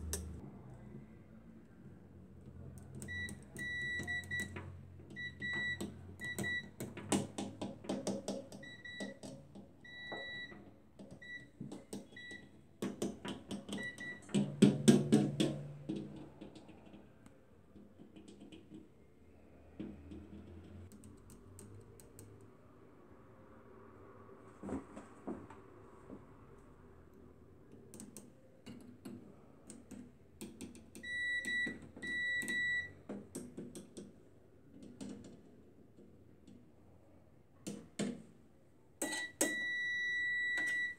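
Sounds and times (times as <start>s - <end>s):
multimeter continuity beeps: 3.0s - 4.6s, 5.2s - 6.8s, 8.6s - 10.6s, 13.7s - 14.3s, 31.0s - 33.0s, 39.0s - 40.9s.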